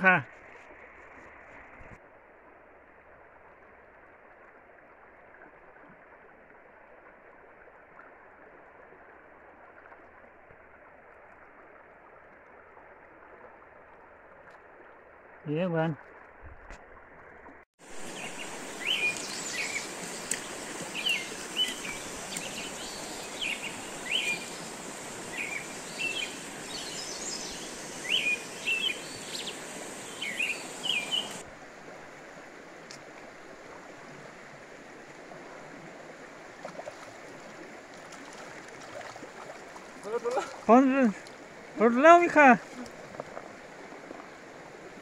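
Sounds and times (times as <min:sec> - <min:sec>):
river water flowing: 0:00.0 - 0:45.0
birds chirping: 0:18.0 - 0:31.4.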